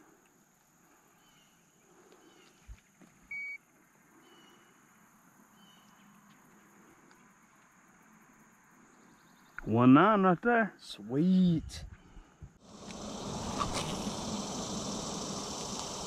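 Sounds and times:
electronic scale beep: 3.3 - 3.6.

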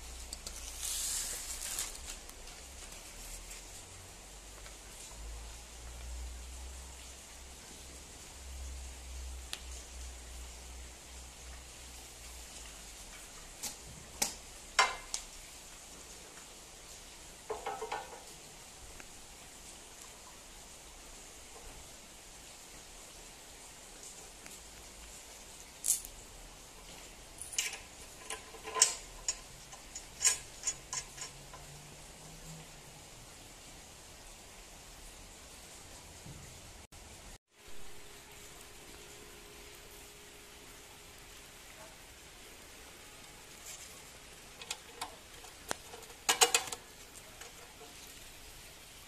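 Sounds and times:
faint hiss: 0.0 - 49.0
metal bolt clicking in bracket: 44.6 - 46.8.

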